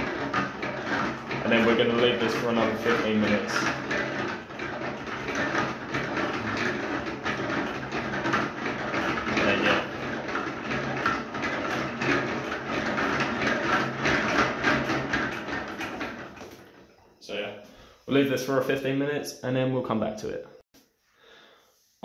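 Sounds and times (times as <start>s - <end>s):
bottles knocking in plastic bucket: 0.0s - 16.8s
liquid sloshing: 0.0s - 17.2s.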